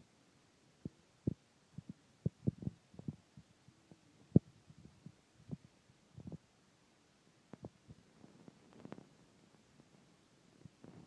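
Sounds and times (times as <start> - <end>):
soft low thumps and taps: 0.8 - 3.5.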